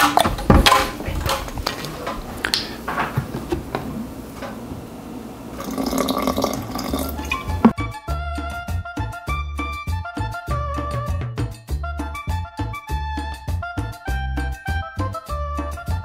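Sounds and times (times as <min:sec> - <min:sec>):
liquid splashing and gurgling: 0:05.6 - 0:07.7.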